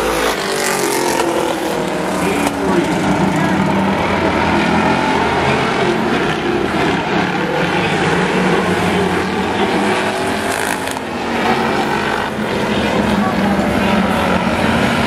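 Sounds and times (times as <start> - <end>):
racing car engines: 0.0 - 15.0.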